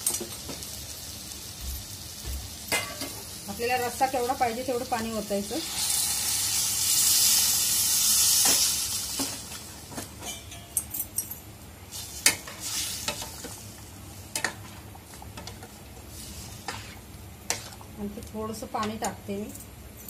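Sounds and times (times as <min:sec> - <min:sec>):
water hissing in hot pan: 0:00.0 - 0:09.8, 0:11.9 - 0:14.0.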